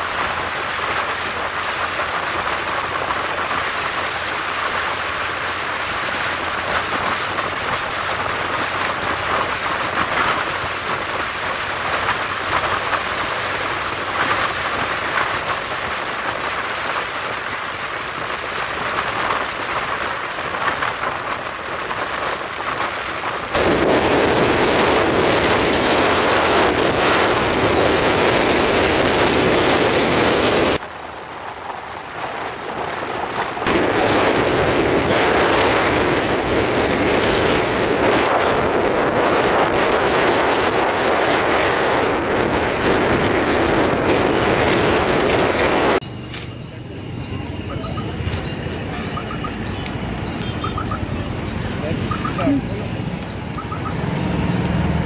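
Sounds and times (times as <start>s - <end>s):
wind rushing over microphone: 0.0s - 46.0s
road noise: 0.0s - 55.0s.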